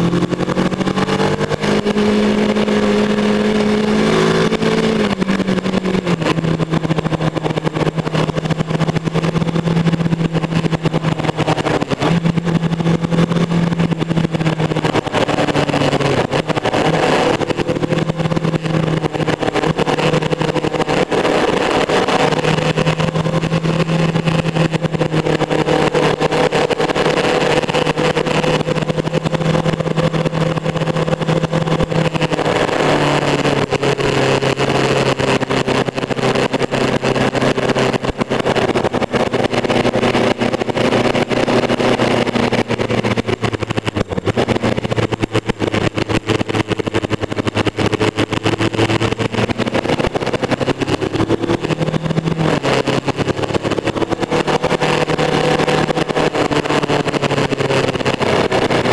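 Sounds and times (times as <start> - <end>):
motorcycle engine cruising: 0.0 - 58.9
wind rush on microphone: 0.0 - 58.9.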